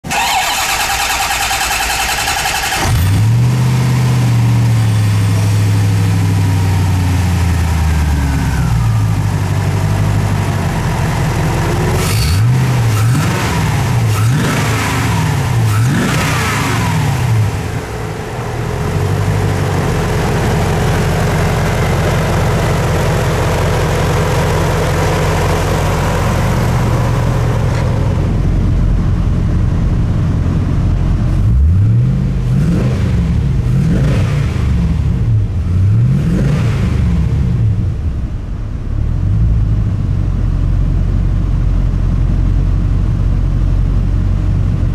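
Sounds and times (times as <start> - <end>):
starter motor cranking: 0.0 - 3.2
car engine revving and idling: 0.0 - 44.9.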